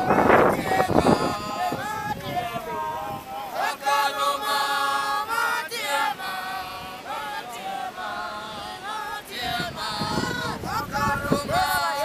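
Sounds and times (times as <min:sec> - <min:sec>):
group singing in harmony: 0:00.0 - 0:12.0.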